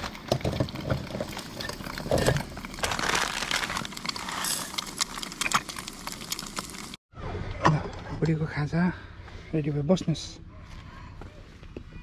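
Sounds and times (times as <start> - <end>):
packaging crinkling and clicking: 2.1 - 6.8.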